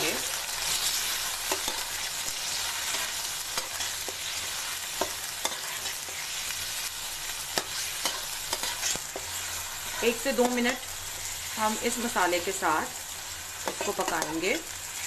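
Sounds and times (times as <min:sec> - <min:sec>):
chicken sizzling in hot oil: 0:00.0 - 0:15.0
metal spoon scraping pan: 0:00.7 - 0:06.4, 0:07.6 - 0:11.4, 0:13.6 - 0:14.5.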